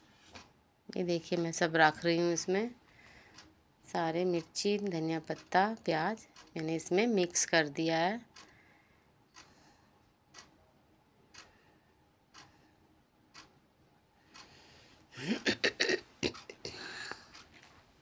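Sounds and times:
clock ticking: 0:01.3 - 0:03.5, 0:04.1 - 0:08.6, 0:09.3 - 0:09.7, 0:10.3 - 0:10.6, 0:11.3 - 0:11.6, 0:12.2 - 0:12.7, 0:13.3 - 0:13.6, 0:14.3 - 0:14.6, 0:15.3 - 0:17.6.

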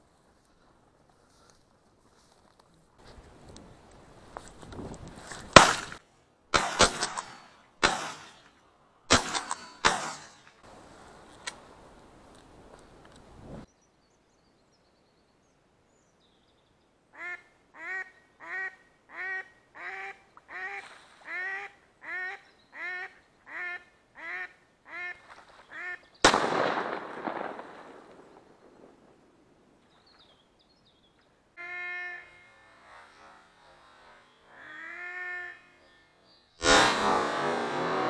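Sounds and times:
shotgun shot: 0:05.5 - 0:08.4, 0:09.1 - 0:10.5, 0:26.2 - 0:28.5, 0:36.6 - 0:38.0
duck quacking: 0:17.2 - 0:26.0, 0:31.6 - 0:37.0.

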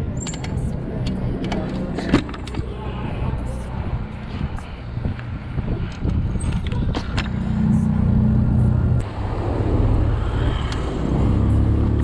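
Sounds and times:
bike clicks and rattles: 0:00.0 - 0:02.8, 0:04.4 - 0:07.6
street traffic: 0:00.0 - 0:12.0
wind rumble on microphone: 0:00.0 - 0:12.0.

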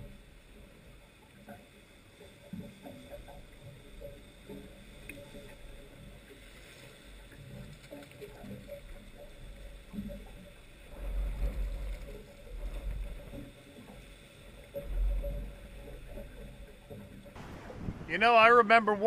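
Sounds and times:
water splashing against boat hull: 0:02.4 - 0:19.0
wind buffeting microphone: 0:17.3 - 0:18.7.

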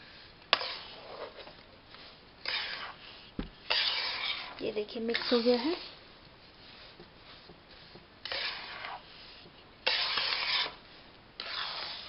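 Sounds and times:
spoon scraping in metal pan: 0:00.5 - 0:01.6, 0:02.4 - 0:05.9, 0:08.2 - 0:10.8, 0:11.4 - 0:12.0.

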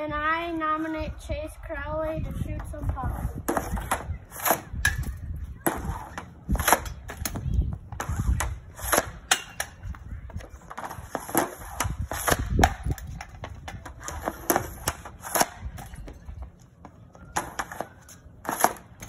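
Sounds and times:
hockey stick slapping pucks: 0:05.6 - 0:07.4, 0:08.0 - 0:09.8, 0:10.6 - 0:16.2, 0:17.3 - 0:19.0.

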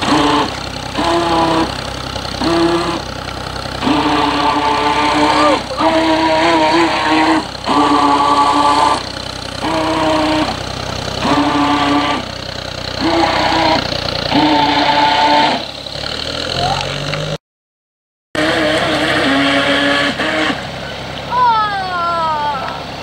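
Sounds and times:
model boat motor whining: 0:00.0 - 0:17.4, 0:18.4 - 0:23.0.

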